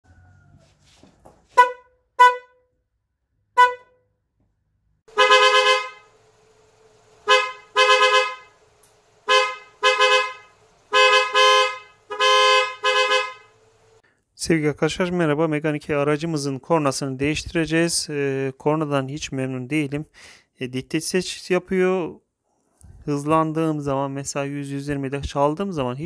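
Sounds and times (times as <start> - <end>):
dual-tone car horn honks: 1.5 - 2.8, 3.5 - 4.2, 5.1 - 6.3, 7.2 - 13.7
car horn short beeps: 1.6 - 2.7, 3.6 - 4.2, 5.1 - 6.1, 7.2 - 8.6, 9.2 - 13.6.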